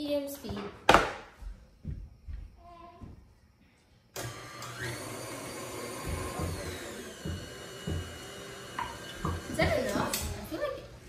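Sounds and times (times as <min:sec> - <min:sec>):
stand mixer motor whirring: 0:04.2 - 0:10.2.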